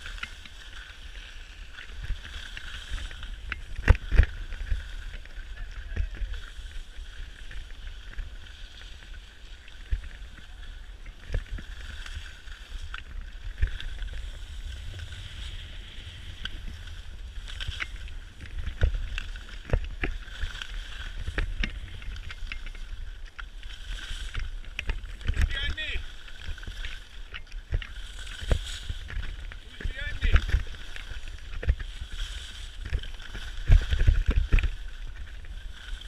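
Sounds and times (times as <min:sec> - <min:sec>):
skis scraping over snow: 0:00.0 - 0:36.0
wind buffeting microphone: 0:13.1 - 0:23.2.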